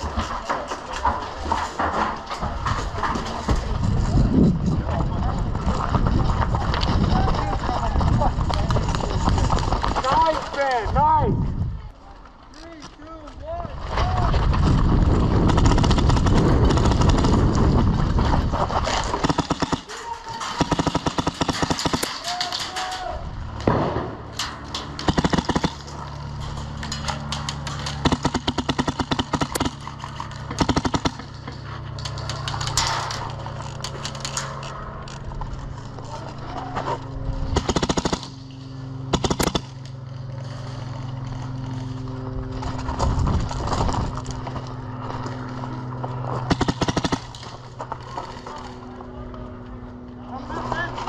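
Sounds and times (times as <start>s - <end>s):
airsoft guns firing bursts: 15.3s - 17.5s, 19.0s - 22.6s, 25.0s - 25.9s, 27.8s - 31.5s, 37.5s - 38.4s, 39.1s - 39.8s, 46.5s - 47.6s
steady low hum: 23.0s - 51.0s.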